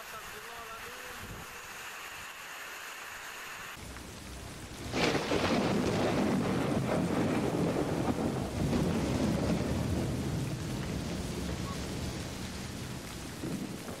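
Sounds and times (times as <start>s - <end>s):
heavy rain falling: 0.0s - 14.0s
thunder rumbling: 3.8s - 14.0s.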